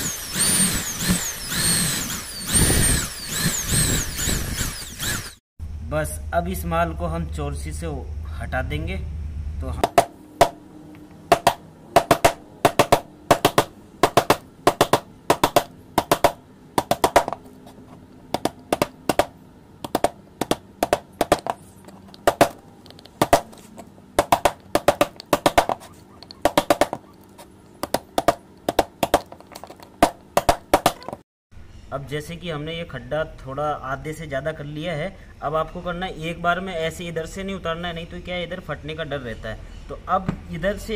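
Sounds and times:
hammer striking chisel: 0:09.8 - 0:10.6, 0:11.3 - 0:17.4, 0:18.4 - 0:21.6, 0:24.2 - 0:27.1.

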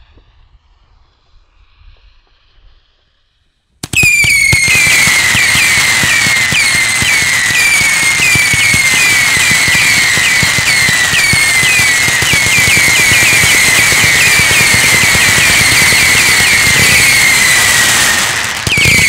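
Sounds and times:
firework shots: 0:03.8 - 0:19.0
firework whistles dropping in pitch: 0:03.8 - 0:19.0.

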